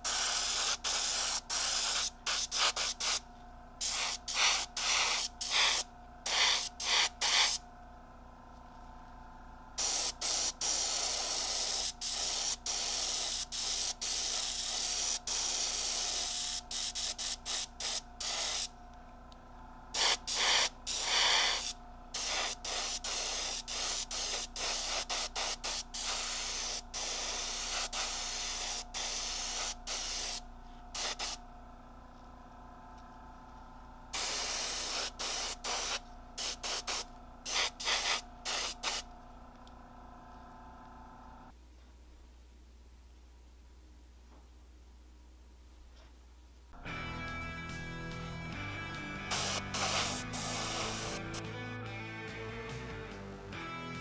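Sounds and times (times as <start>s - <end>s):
airbrush spraying hiss: 0.0s - 3.2s, 3.8s - 7.6s, 9.8s - 18.7s, 20.0s - 30.4s, 31.0s - 31.4s, 34.2s - 39.0s, 49.3s - 51.4s.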